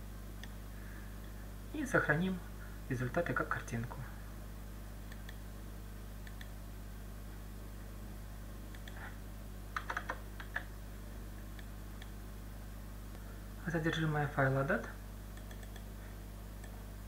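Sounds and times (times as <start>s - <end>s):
steady low hum: 0.0s - 17.0s
keyboard typing: 9.8s - 10.7s, 15.4s - 15.9s.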